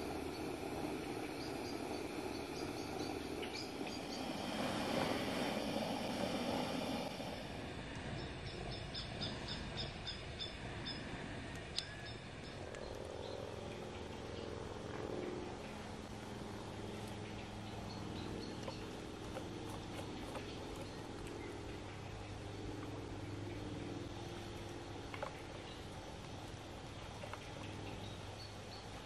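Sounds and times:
steady forest rushing: 0.0s - 8.2s.

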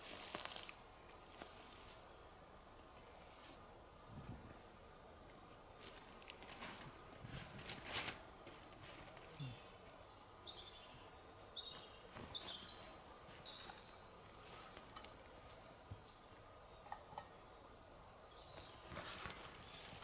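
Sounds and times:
soft clicks and rustles: 5.3s - 9.3s, 18.5s - 20.0s
small bird chirping: 10.4s - 15.2s.

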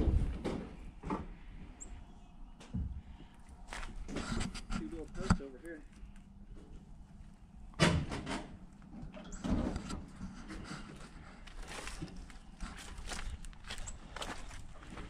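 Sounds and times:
knocks and scrapes: 3.7s - 5.9s, 7.8s - 15.0s.

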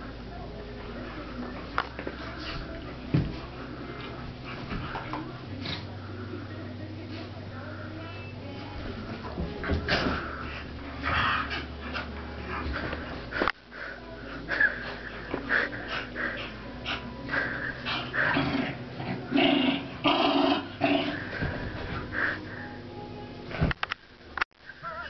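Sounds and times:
dogs growling: 3.6s - 6.2s, 9.6s - 22.7s.

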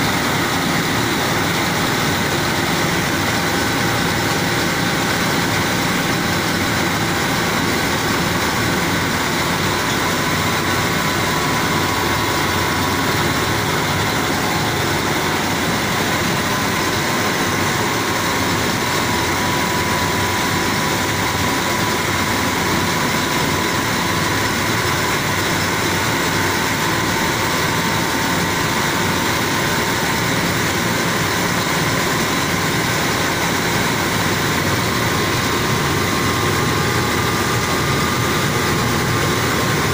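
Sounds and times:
mill machinery running: 0.0s - 39.9s.

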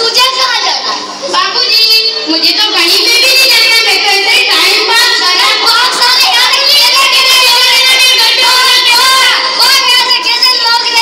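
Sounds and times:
child singing loudly: 3.1s - 11.0s.

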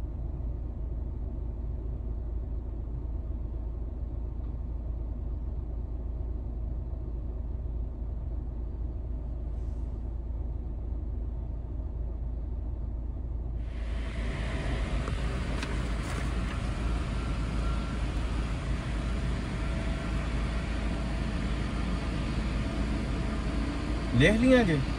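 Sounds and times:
jet engines rumbling: 13.6s - 24.9s
hissing jet roar: 13.8s - 24.9s.

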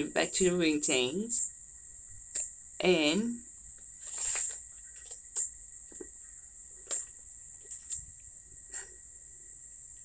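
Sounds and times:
high-pitched background whine: 0.0s - 10.0s
paper rustling: 4.0s - 5.5s.

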